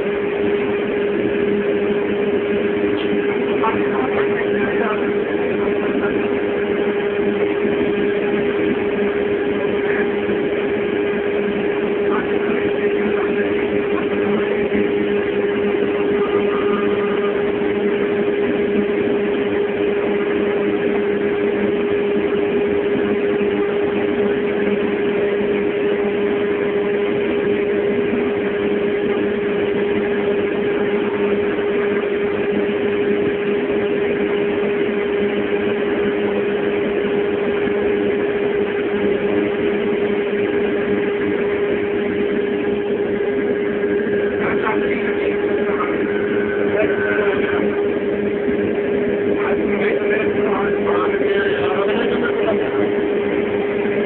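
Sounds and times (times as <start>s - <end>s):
steady machine hum: 0.0s - 54.0s.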